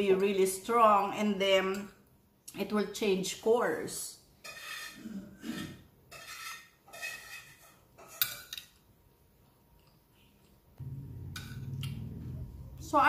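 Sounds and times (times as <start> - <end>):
cutlery scraping on china plate: 4.4 - 8.7.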